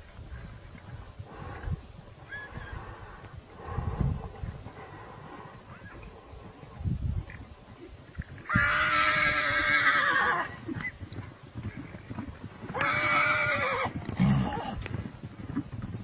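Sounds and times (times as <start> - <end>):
horse neighing: 8.4 - 11.0, 12.7 - 14.8.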